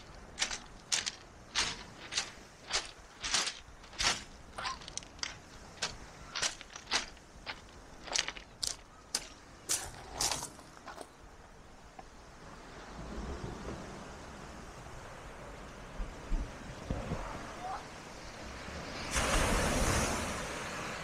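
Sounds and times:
footsteps crunching on stones: 0.0s - 11.2s.

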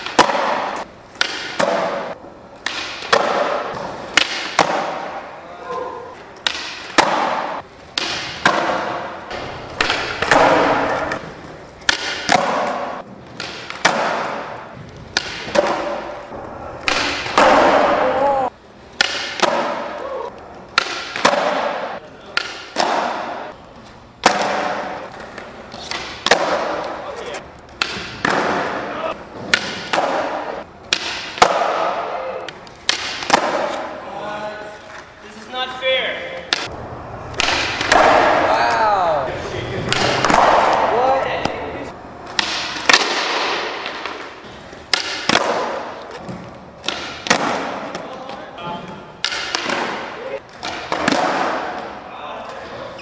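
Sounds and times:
skateboard landing: 0.0s - 23.5s, 24.2s - 27.0s, 27.7s - 34.0s, 36.5s - 38.7s, 39.8s - 48.1s, 48.9s - 52.0s
skateboard wooden clacks: 37.4s - 38.5s, 39.8s - 41.6s.

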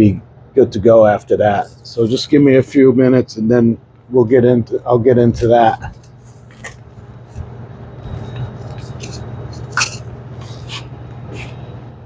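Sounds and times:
low machinery hum: 0.0s - 12.0s.

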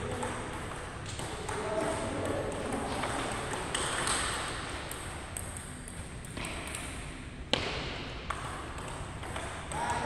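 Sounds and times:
table tennis ball clicking: 0.0s - 7.0s
low hum of hall: 0.0s - 10.0s.

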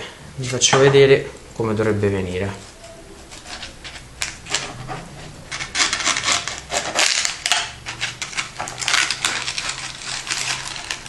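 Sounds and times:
baking paper crackling: 2.4s - 11.0s
knife sawing through tortilla: 4.5s - 11.0s.

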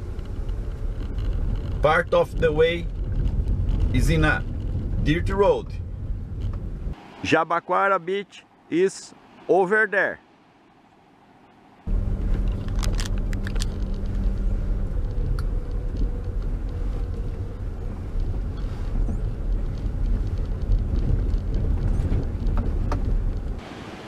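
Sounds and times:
car rumbling on dirt road: 0.0s - 7.4s, 11.7s - 24.0s
sharp clicks and knocks: 12.3s - 23.6s.

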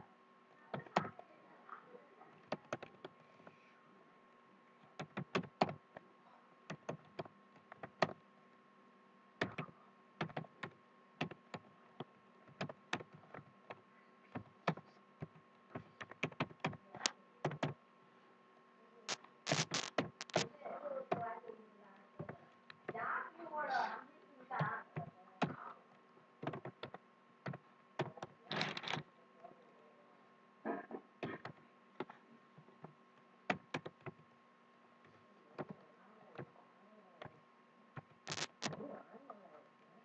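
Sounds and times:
faint steady hum: 0.0s - 40.0s
keyboard key clicks: 19.5s - 20.4s, 38.3s - 38.8s.

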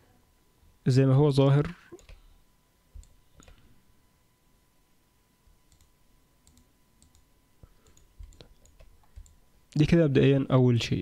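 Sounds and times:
computer mouse clicks: 1.9s - 2.3s, 3.0s - 3.6s, 5.7s - 9.4s.

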